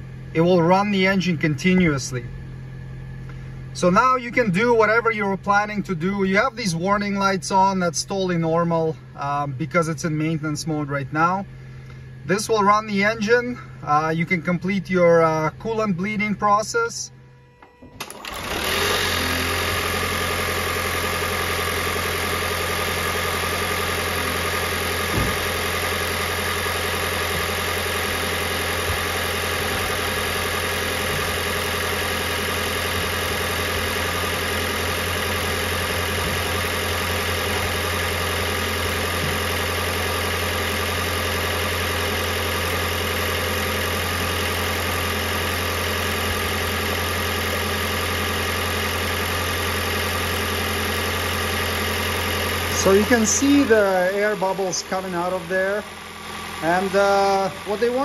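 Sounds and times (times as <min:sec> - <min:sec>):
car engine idling: 0:00.0 - 0:58.0
short knock: 0:25.1 - 0:25.4.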